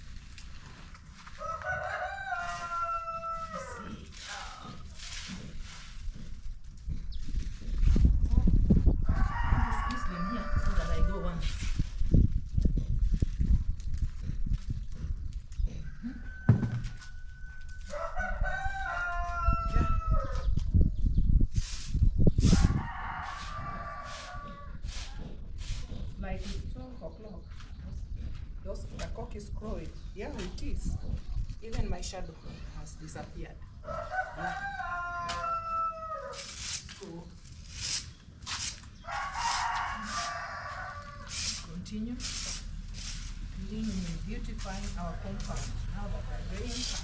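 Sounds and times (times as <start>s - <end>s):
broom swishing on brick paving: 0.0s - 6.5s, 21.5s - 26.8s, 36.3s - 47.0s
rooster crowing: 1.4s - 3.9s, 9.1s - 11.2s, 15.8s - 20.5s, 22.5s - 24.7s, 33.8s - 36.4s, 39.1s - 41.4s.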